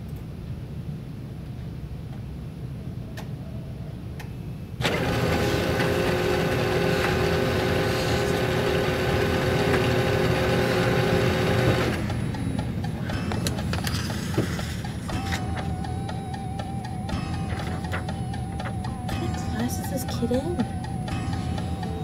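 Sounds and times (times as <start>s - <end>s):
printer whirring: 4.8s - 22.0s.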